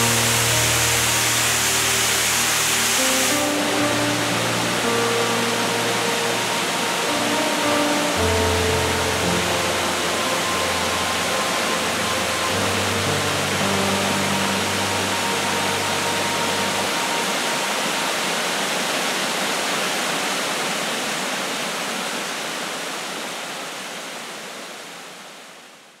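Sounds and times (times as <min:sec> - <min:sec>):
background music: 0:00.0 - 0:18.4
waterfall rushing: 0:00.0 - 0:25.7.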